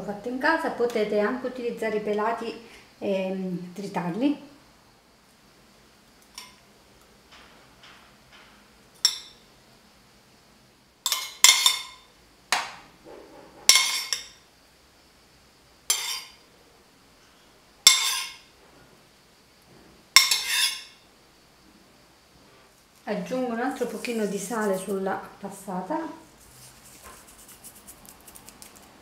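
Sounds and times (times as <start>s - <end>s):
metal spoon clinking on ceramic bowl: 9.0s - 9.4s.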